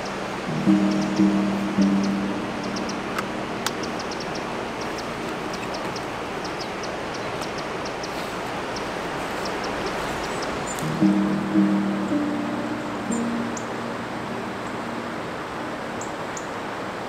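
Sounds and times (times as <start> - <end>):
river water rushing: 0.0 - 17.0
faint high ticks: 2.7 - 11.2.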